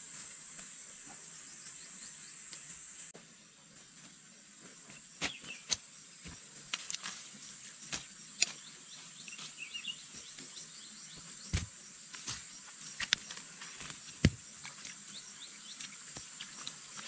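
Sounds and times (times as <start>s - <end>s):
bird chirps: 4.8s - 5.8s, 7.9s - 11.6s.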